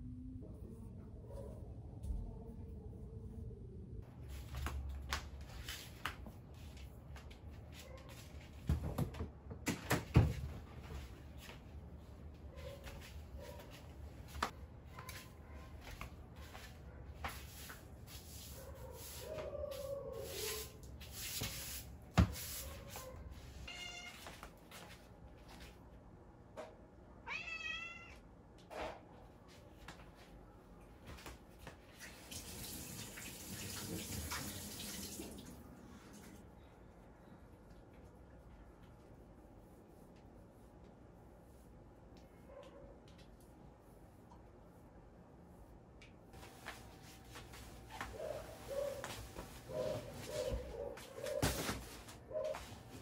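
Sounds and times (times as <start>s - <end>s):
water running into a sink: 32.1s - 35.6s.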